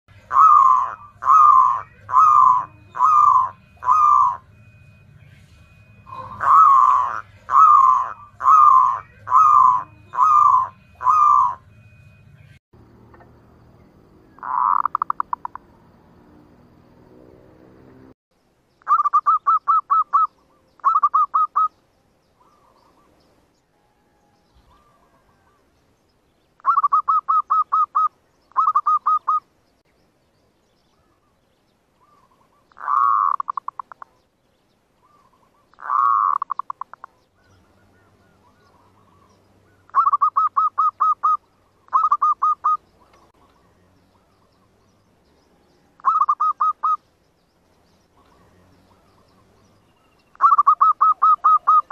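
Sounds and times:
dove cooing: 0:00.2 - 0:04.6, 0:06.1 - 0:11.6, 0:14.4 - 0:15.6, 0:18.9 - 0:21.7, 0:23.9 - 0:25.6, 0:26.6 - 0:29.4, 0:32.0 - 0:34.1, 0:35.0 - 0:44.6, 0:45.8 - 0:47.0, 0:50.4 - 0:51.9.

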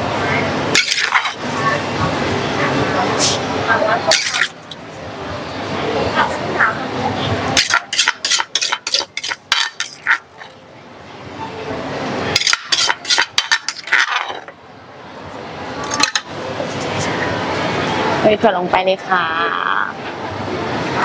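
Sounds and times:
metal spoon clinking on plate: 0:07.6 - 0:10.2.

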